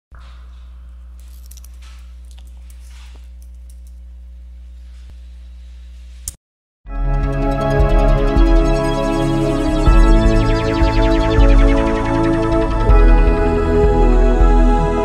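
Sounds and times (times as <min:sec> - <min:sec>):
steady low hum: 0:00.2 - 0:06.3.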